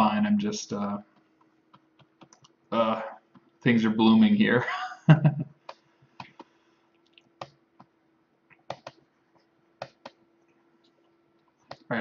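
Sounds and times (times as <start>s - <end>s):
faint steady hum: 0.0s - 12.0s
keyboard key clicks: 8.7s - 9.0s.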